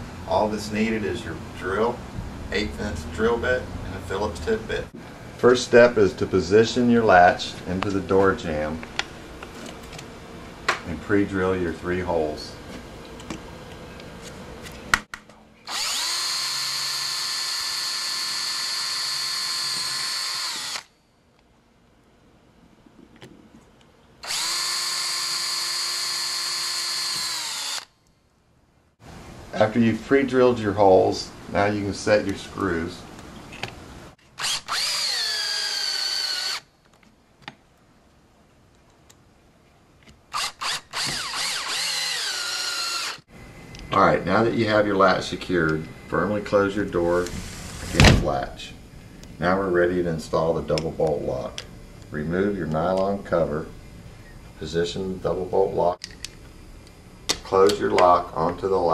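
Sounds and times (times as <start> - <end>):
power drill whining: 15.7 - 20.9, 24.2 - 27.9, 34.4 - 36.7, 40.3 - 43.3.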